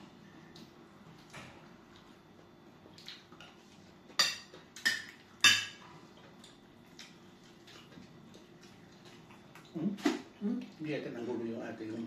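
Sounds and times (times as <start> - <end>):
tableware clinking: 4.2 - 5.8.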